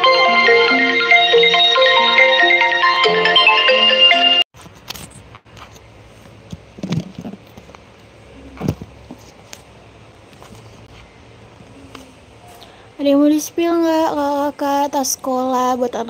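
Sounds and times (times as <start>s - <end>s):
marimba melody: 0.0s - 4.4s.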